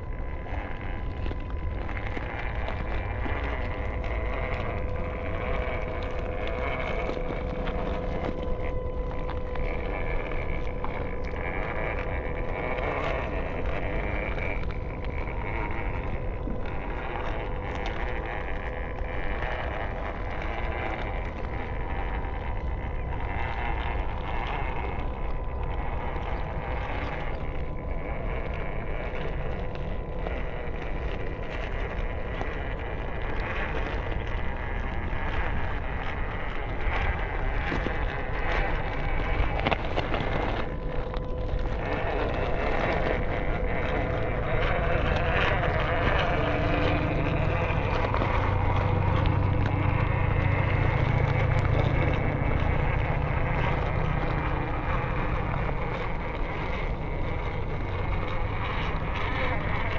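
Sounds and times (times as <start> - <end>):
electric motor and gearbox whine: 0.0 - 59.9
tyres crunching on gravel: 0.0 - 59.9
wind rumble on microphone: 0.0 - 59.9.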